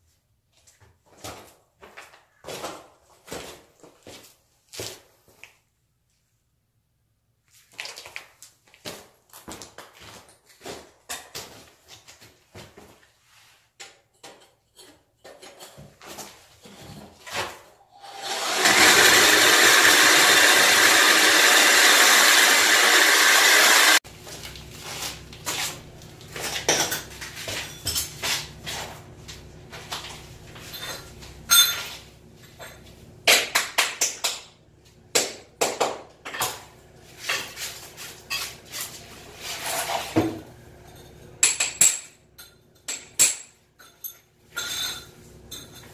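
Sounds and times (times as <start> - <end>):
power tool running: 18.0 - 24.0.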